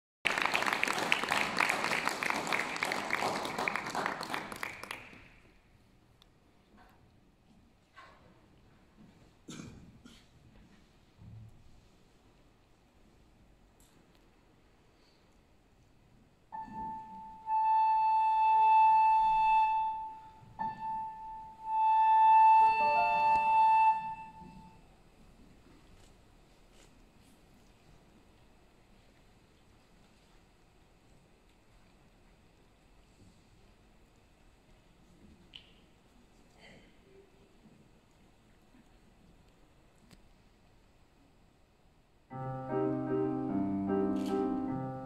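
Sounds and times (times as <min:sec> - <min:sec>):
audience applauding: 0:00.2 - 0:05.5
flute playing long high notes: 0:16.6 - 0:24.8
piano chord: 0:42.3 - 0:45.0.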